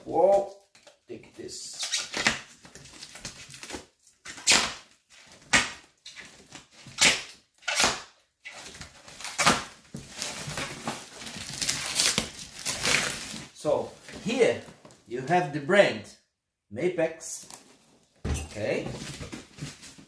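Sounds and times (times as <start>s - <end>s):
tape ripping off box: 1.8s - 6.3s, 6.9s - 9.8s, 11.4s - 13.4s
plastic wrap crinkling: 8.8s - 15.0s.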